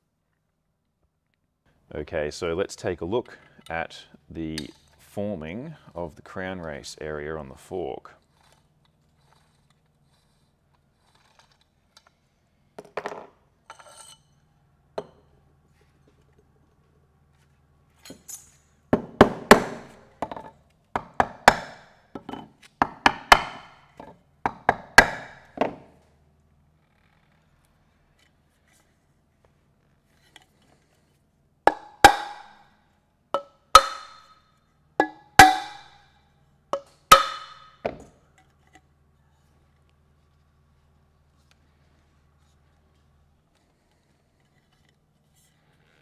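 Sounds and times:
mallet knocking on metal: 22.8 - 23.7, 24.5 - 25.8, 31.7 - 32.5, 33.4 - 34.3, 35.0 - 36.0, 36.8 - 38.1
ringing knocks: 33.4 - 34.3, 35.0 - 35.9, 36.8 - 38.1.

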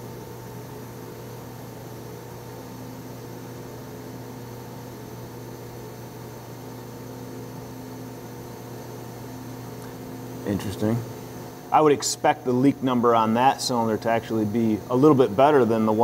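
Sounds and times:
constant hum: 4.9 - 16.0.

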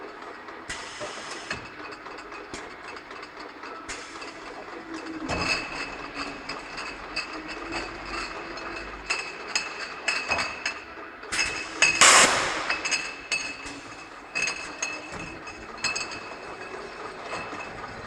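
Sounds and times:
loud hiss of air: 0.7 - 1.5
glass bottles clinking: 1.3 - 18.0.

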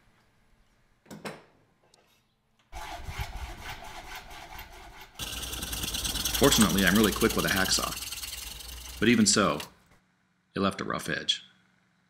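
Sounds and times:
hacksaw cutting plastic pipe: 2.8 - 9.7.

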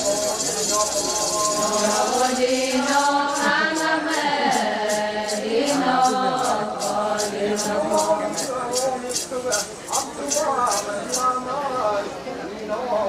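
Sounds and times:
voices chanting a song: 0.0 - 9.0
rhythmic jingling: 0.0 - 11.5.

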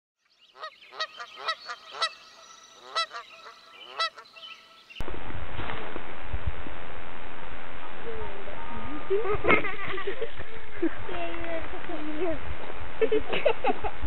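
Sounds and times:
honking bird calls: 0.5 - 5.0.

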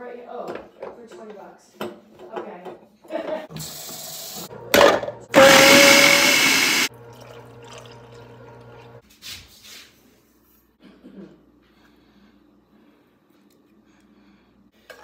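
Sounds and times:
blender running: 3.6 - 9.0.

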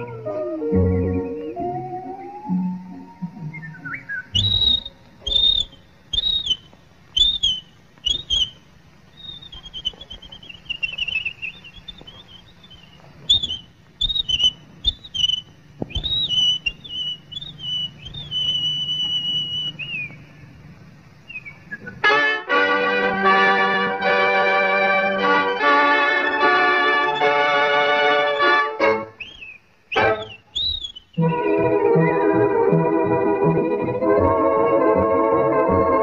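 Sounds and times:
whistled cartoon bird calls: 0.0 - 8.6, 9.2 - 20.2, 28.3 - 31.3
faint low hum: 0.0 - 36.0.

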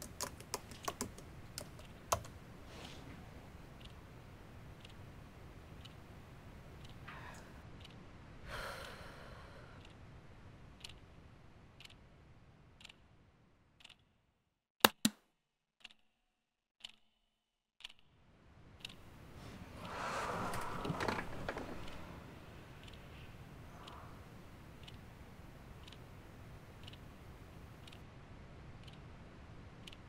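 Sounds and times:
clock ticking: 3.5 - 7.1, 7.7 - 8.1, 9.8 - 13.2, 13.8 - 14.1, 17.8 - 18.1, 18.8 - 19.1, 19.8 - 28.1, 28.8 - 30.0
breathy sigh: 7.0 - 7.6, 8.4 - 9.8, 19.6 - 22.3.

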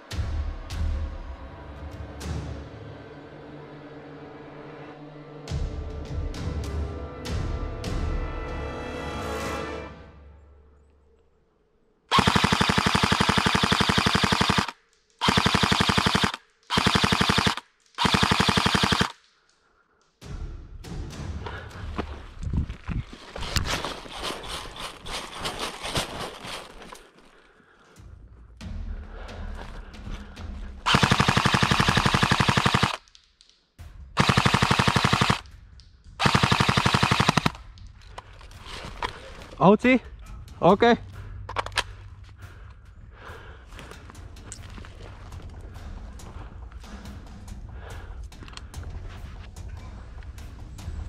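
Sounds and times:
automatic gunfire bursts: 12.1 - 19.1, 30.9 - 33.0, 34.2 - 35.4, 36.2 - 37.6.

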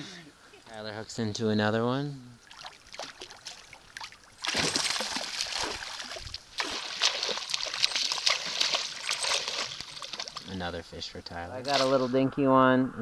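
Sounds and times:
fish thrashing and splashing: 2.4 - 10.5.

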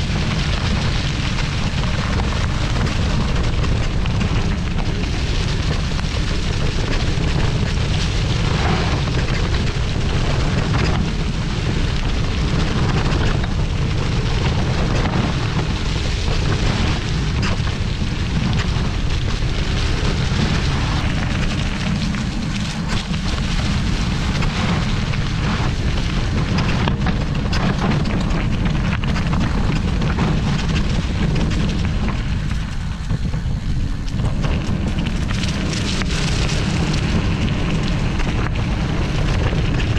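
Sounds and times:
bike tyres rolling over leaves and dirt: 0.0 - 39.9
crackle of leaves: 0.0 - 39.9
wind rumbling on microphone: 0.0 - 39.9.

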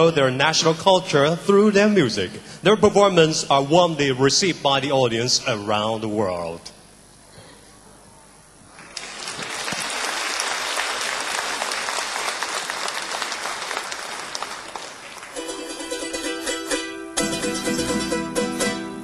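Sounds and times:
audience applause: 8.8 - 15.5
plucked string instruments playing: 15.4 - 19.0.

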